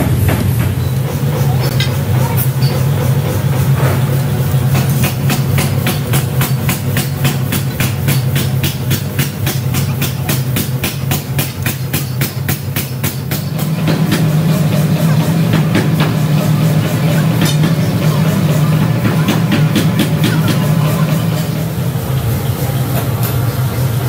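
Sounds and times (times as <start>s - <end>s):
machinery low hum: 0.0s - 24.0s.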